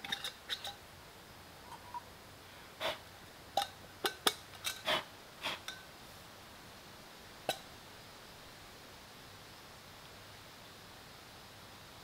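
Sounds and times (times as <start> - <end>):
metal cookware clinking: 0.0 - 0.8.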